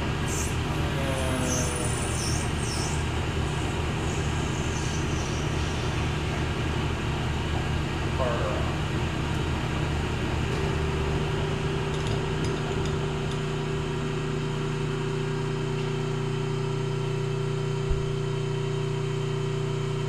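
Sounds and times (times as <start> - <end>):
higher machine tone: 0.0 - 6.9
lathe humming: 0.0 - 7.5.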